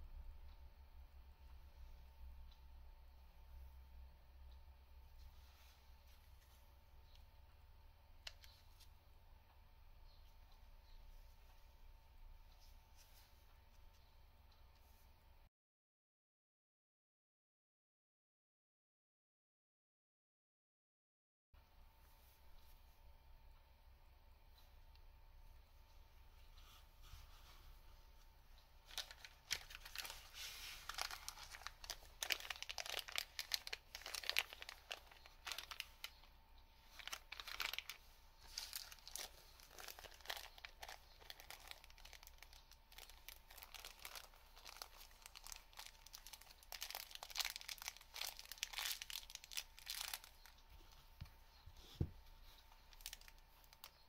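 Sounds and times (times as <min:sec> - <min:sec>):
plastic bag crinkling: 0:28.8 - 0:36.2, 0:36.8 - 0:50.6, 0:52.8 - 0:54.0.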